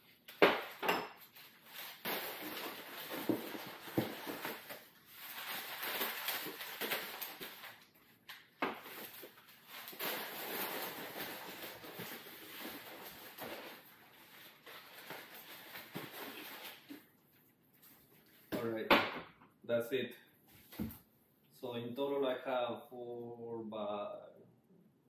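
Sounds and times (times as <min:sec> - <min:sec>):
packing paper rustling and crinkling: 0:01.2 - 0:17.1.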